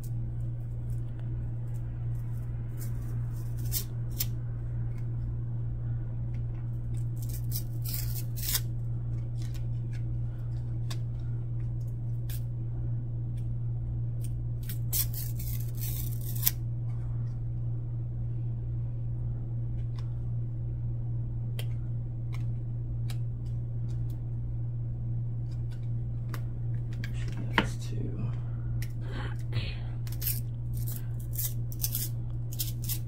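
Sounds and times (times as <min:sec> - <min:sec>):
low hum: 0:00.0 - 0:33.0
trading cards scraping: 0:00.8 - 0:04.4, 0:06.9 - 0:11.2, 0:14.6 - 0:16.6, 0:30.0 - 0:33.0.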